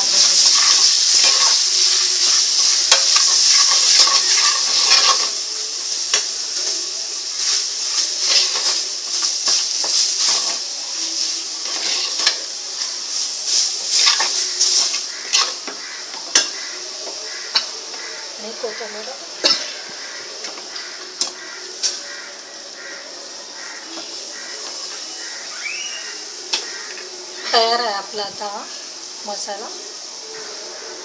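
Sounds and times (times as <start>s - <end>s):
spatula scraping and knocking pan: 0.0s - 5.4s, 7.9s - 10.6s, 13.9s - 18.1s
paste frying in oil: 0.0s - 31.0s.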